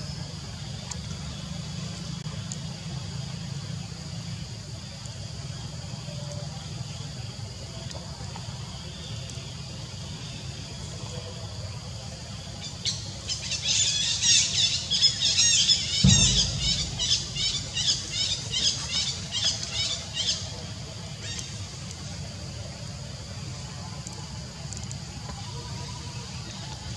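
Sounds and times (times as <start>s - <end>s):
low thump: 16.0s - 18.9s.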